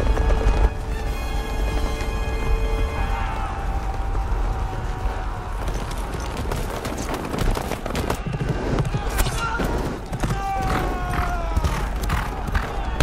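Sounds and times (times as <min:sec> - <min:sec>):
galloping hoofbeats: 0:00.0 - 0:13.0
long falling cry: 0:01.6 - 0:06.1
men shouting: 0:10.2 - 0:13.0.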